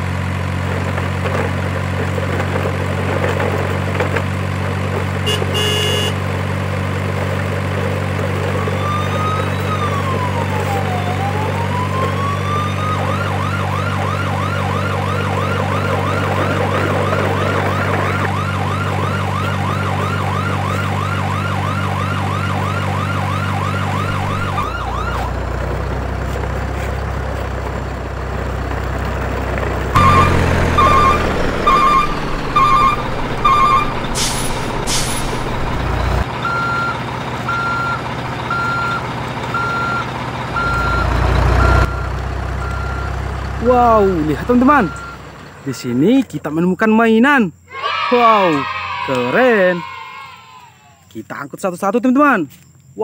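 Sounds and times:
low truck engine drone: 0:00.0 - 0:46.4
fast yelping siren: 0:08.5 - 0:25.4, 0:30.0 - 0:34.2, 0:47.7 - 0:51.0
reversing beeps: 0:08.6 - 0:10.0, 0:30.0 - 0:34.0, 0:36.4 - 0:43.2, 0:43.8 - 0:45.2
short beeps: 0:44.7 - 0:45.2.

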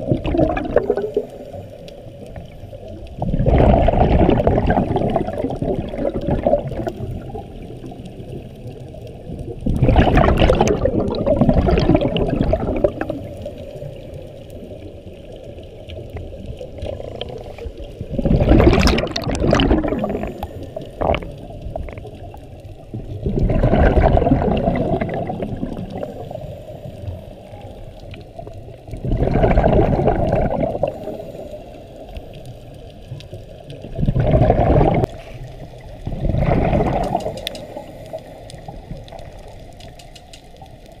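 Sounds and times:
regulator exhale bubbling: 0:00.0 - 0:02.6, 0:03.2 - 0:07.5, 0:09.6 - 0:14.2, 0:16.7 - 0:22.3, 0:22.9 - 0:27.5, 0:28.9 - 0:32.2, 0:33.8 - 0:39.5
steady underwater rush: 0:00.0 - 0:41.0.

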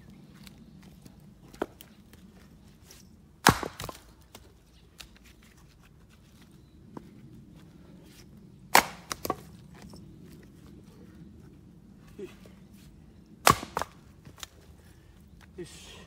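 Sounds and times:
axe chopping firewood: 0:03.4 - 0:04.4, 0:08.7 - 0:09.5, 0:13.4 - 0:14.5.

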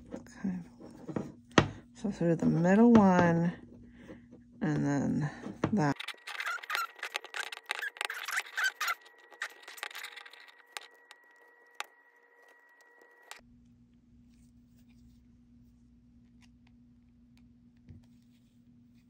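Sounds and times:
small plastic clicks and scratches: 0:05.9 - 0:11.9
faint low hum: 0:09.3 - 0:19.0.

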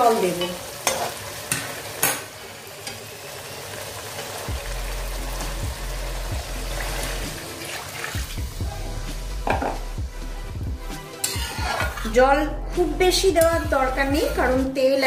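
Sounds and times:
potatoes sizzling in oil: 0:00.0 - 0:08.6, 0:11.2 - 0:12.2.

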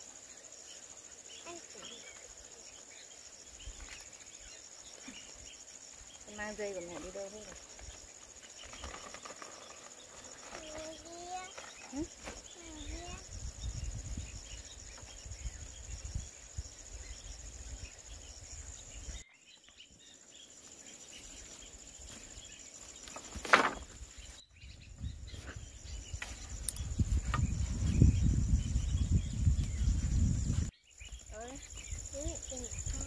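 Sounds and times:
high-pitched insect drone: 0:07.3 - 0:19.2
sharp rustling: 0:21.4 - 0:24.4
low rumbling rustling noise: 0:23.1 - 0:30.7.

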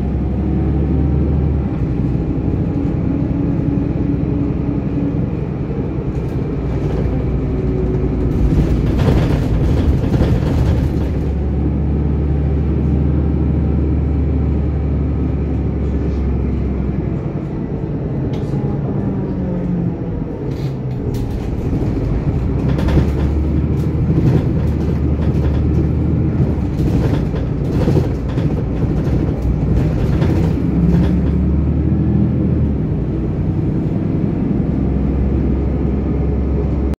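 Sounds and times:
bus engine droning: 0:00.0 - 0:37.0
clicks and rattles: 0:21.0 - 0:31.4.

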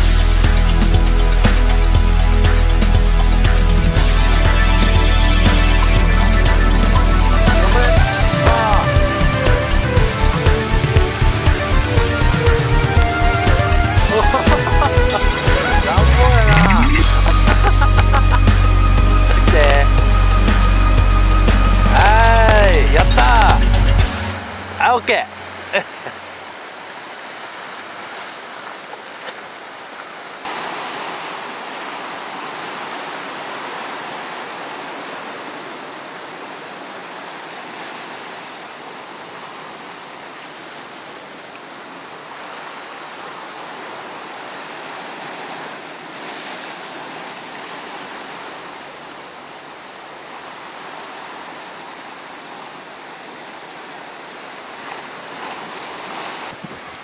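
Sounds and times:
surf breaking on rocky shore: 0:12.4 - 0:18.7, 0:21.8 - 0:23.6, 0:24.3 - 0:57.0.

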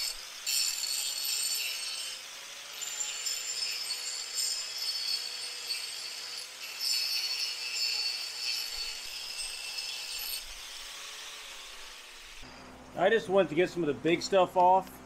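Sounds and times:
angle grinder grinding metal: 0:00.0 - 0:12.7.

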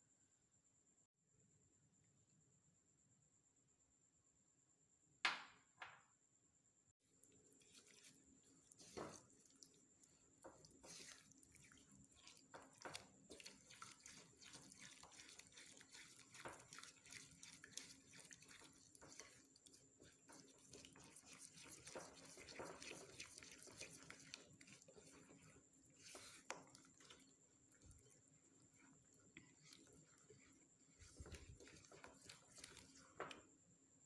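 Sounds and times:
spatula stirring batter in bowl: 0:07.0 - 0:33.8.

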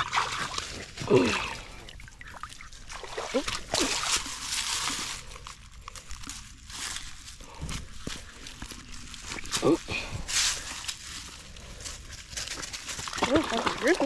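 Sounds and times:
rustling: 0:03.6 - 0:14.0.

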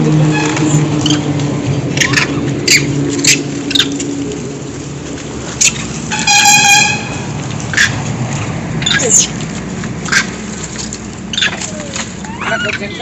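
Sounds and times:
monkeys squeaking: 0:00.4 - 0:04.0, 0:05.5 - 0:08.0, 0:08.8 - 0:09.5, 0:10.1 - 0:13.0
monkey steady call: 0:11.3 - 0:13.0.

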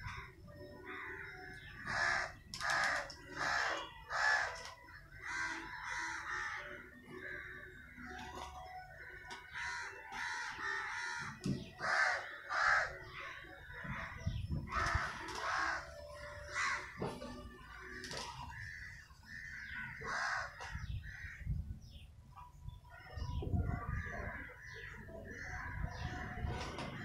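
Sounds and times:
crows cawing: 0:00.0 - 0:08.2, 0:08.8 - 0:21.6, 0:23.8 - 0:27.0.

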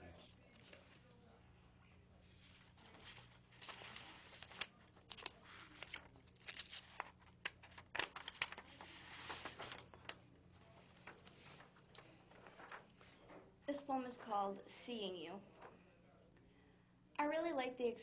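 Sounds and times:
faint low hum: 0:00.0 - 0:18.0
paper rustling and shuffling: 0:00.5 - 0:13.6, 0:15.4 - 0:15.8.

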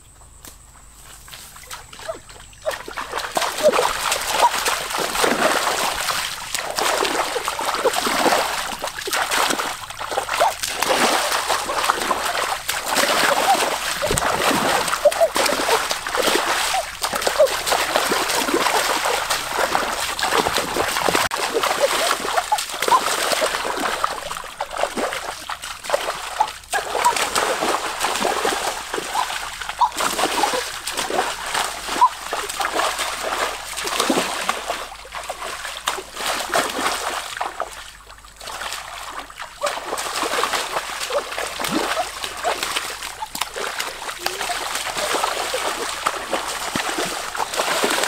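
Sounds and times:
water splashing and sloshing: 0:01.0 - 0:48.0.

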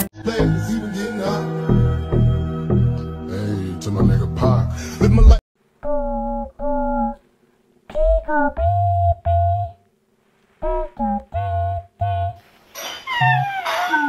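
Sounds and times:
person humming a tune: 0:05.1 - 0:07.2, 0:07.9 - 0:09.8, 0:10.6 - 0:12.4, 0:13.1 - 0:14.0.

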